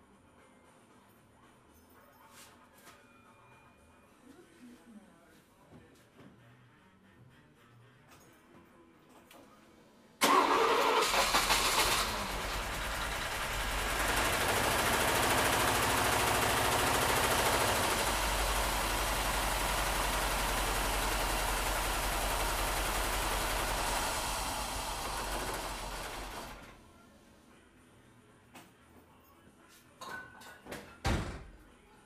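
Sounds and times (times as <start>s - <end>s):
starter motor cranking: 10.2s - 26.7s
car engine idling: 10.3s - 26.6s.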